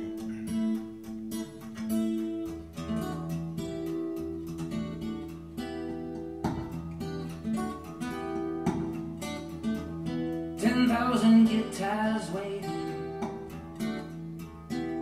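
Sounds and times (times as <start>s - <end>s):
acoustic guitar over loudspeakers: 0.0s - 15.0s
person singing: 10.6s - 13.5s.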